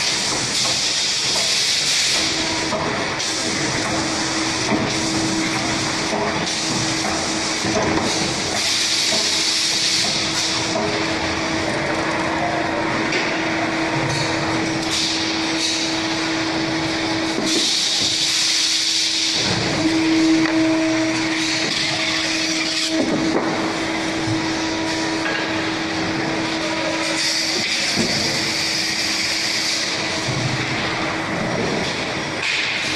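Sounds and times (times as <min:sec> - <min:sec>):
machine humming: 0:00.0 - 0:32.8.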